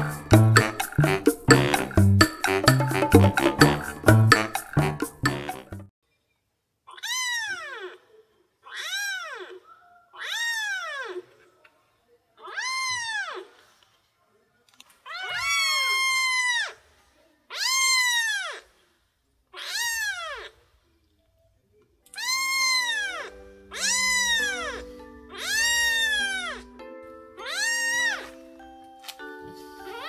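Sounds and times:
background music: 0:00.0 - 0:05.9, 0:22.9 - 0:30.0
kitten meowing: 0:17.5 - 0:18.6, 0:19.6 - 0:20.5, 0:22.2 - 0:26.7, 0:27.4 - 0:28.3.

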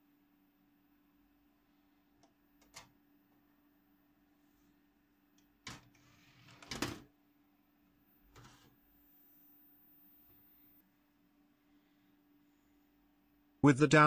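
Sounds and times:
steady low hum: 0:07.2 - 0:14.0.

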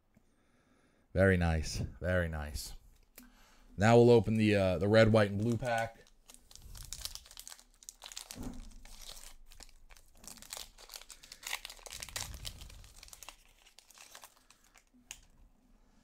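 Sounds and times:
foil wrapper tearing and crinkling: 0:05.2 - 0:15.3.

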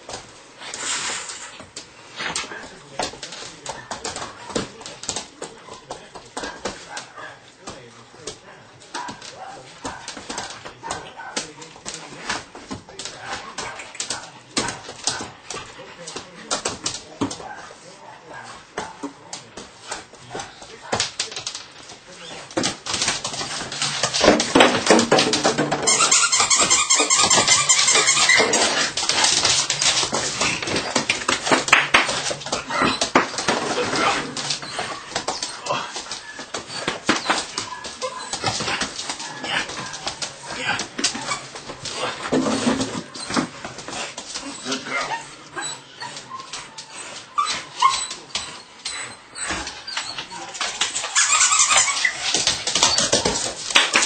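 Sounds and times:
puppy whimpering: 0:23.6 - 0:41.4, 0:44.4 - 0:53.5
puppy yelping: 0:25.8 - 0:31.6, 0:32.2 - 0:40.0, 0:44.5 - 0:53.4.

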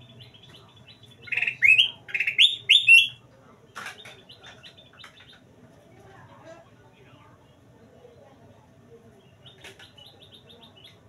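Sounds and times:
bird chattering softly: 0:00.0 - 0:03.2
bird whistling song: 0:00.2 - 0:03.2.

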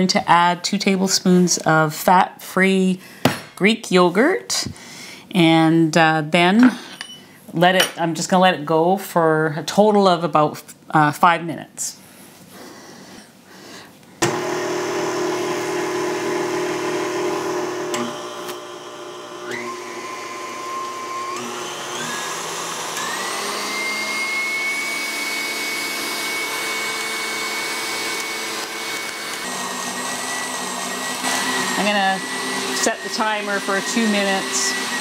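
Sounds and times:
stand mixer motor whine: 0:14.2 - 0:35.0.

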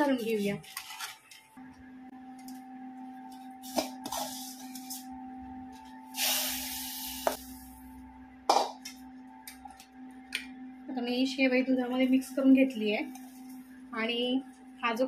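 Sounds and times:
hiss of food in hot milk: 0:06.2 - 0:07.4.

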